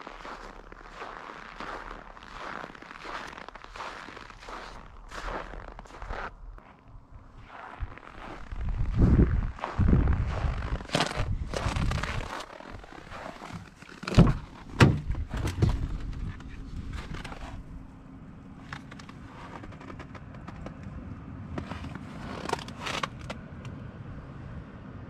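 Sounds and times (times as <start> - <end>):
steady low hum: 0.0 - 22.6.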